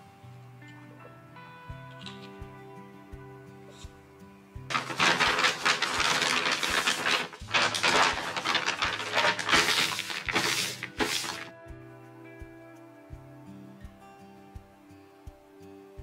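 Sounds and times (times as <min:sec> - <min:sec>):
soft music with steady beat: 0:00.0 - 0:16.0
paper bag crinkling: 0:04.7 - 0:11.5.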